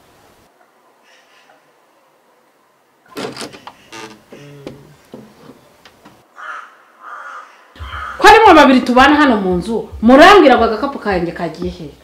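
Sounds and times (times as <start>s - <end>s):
wooden door creaking and knocking: 3.1s - 6.2s.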